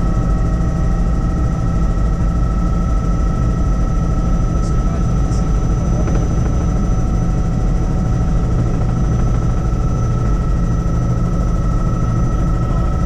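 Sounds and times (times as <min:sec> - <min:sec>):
helicopter rotor and engine drone: 0:00.0 - 0:13.0.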